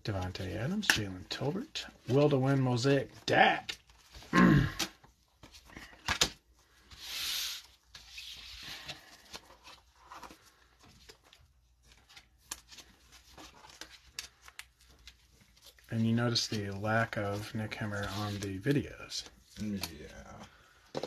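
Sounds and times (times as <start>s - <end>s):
cards rubbing and sliding: 5.4s - 10.8s, 17.4s - 20.2s.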